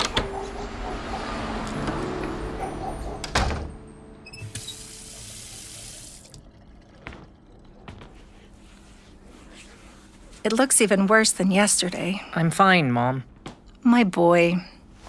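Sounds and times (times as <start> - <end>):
water running from tap into sink: 4.4 - 7.2.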